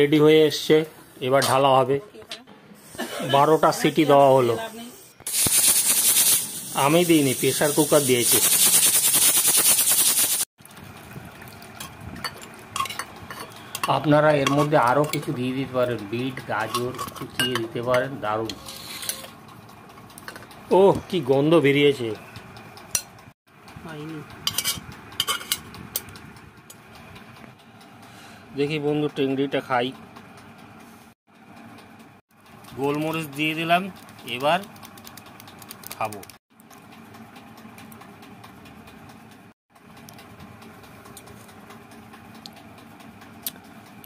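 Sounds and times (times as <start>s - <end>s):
steady background hum: 0.0s - 8.3s, 10.8s - 44.0s
metal spoon clinking on bowl: 12.2s - 15.3s.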